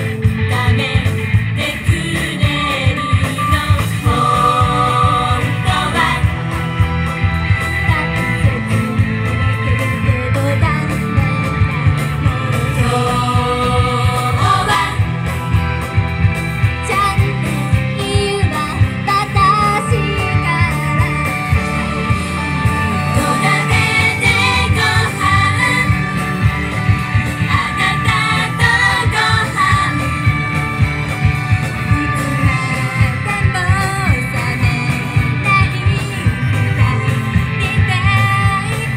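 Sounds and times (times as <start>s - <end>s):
pop song over loudspeakers: 0.0s - 38.9s
women singing into microphones: 0.4s - 6.4s, 12.2s - 15.1s, 23.1s - 26.0s, 27.5s - 30.1s, 31.9s - 38.9s.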